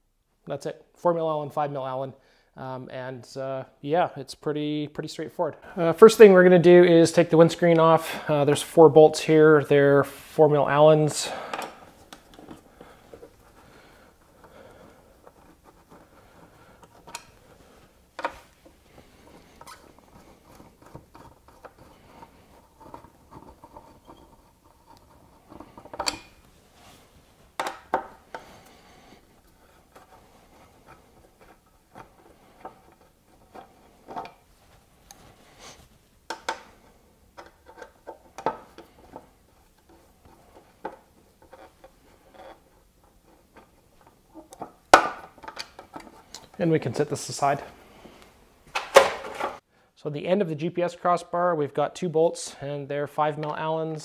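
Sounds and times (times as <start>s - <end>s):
allen key clicking and scraping: 19.2s - 26.5s.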